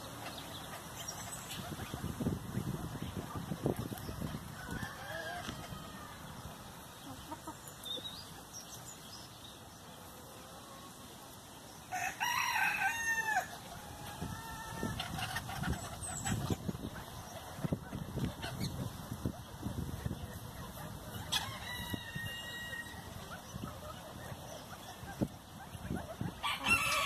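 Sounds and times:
chickens clucking: 0.0 - 27.0
rooster crowing: 4.6 - 6.2, 11.9 - 13.5, 21.4 - 23.1, 26.4 - 27.0.

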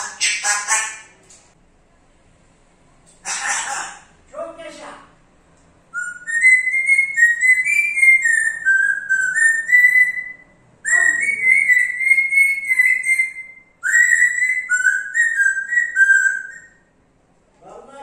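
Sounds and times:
parrot whistling a tune: 5.9 - 16.9.

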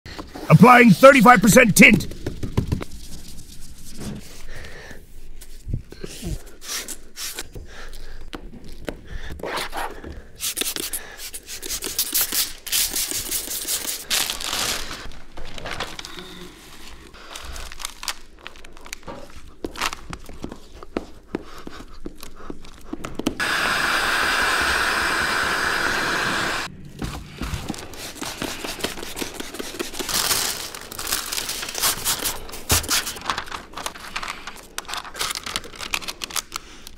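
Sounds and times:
plastic sheeting crinkling: 14.1 - 16.1, 30.1 - 36.5.

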